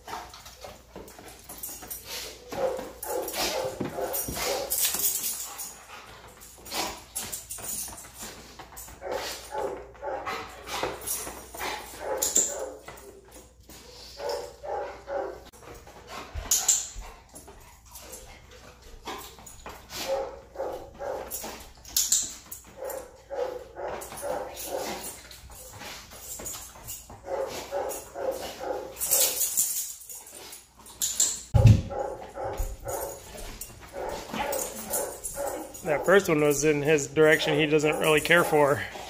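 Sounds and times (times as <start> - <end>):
dog barking: 2.4 - 4.7, 9.0 - 10.4, 12.0 - 12.8, 14.2 - 15.5, 20.0 - 21.3, 22.8 - 25.1, 27.2 - 29.0, 31.6 - 33.3, 33.9 - 36.1, 37.5 - 38.7.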